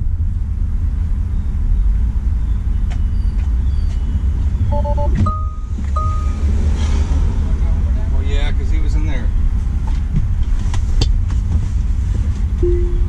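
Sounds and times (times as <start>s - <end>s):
low car cabin rumble: 0.0s - 13.0s
chime tones: 4.7s - 6.4s
short pulsed beep: 4.7s - 6.5s, 12.6s - 13.0s.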